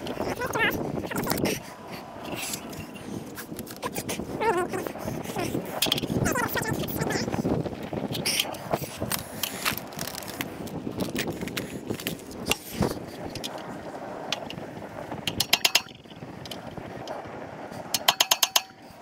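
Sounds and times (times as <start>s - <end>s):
rustling: 7.7s - 13.3s
rapid metallic ratchet clicking: 15.2s - 16.6s, 17.9s - 18.8s.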